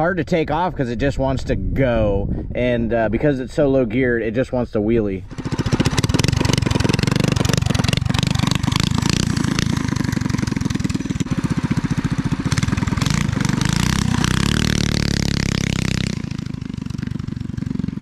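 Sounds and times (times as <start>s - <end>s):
mini bike engine at full throttle: 5.3s - 18.0s.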